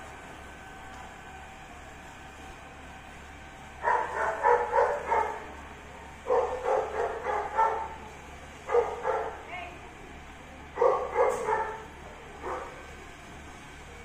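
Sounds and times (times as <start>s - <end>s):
dog barking: 3.8s - 5.5s, 6.3s - 8.0s, 8.7s - 9.4s, 10.8s - 12.8s.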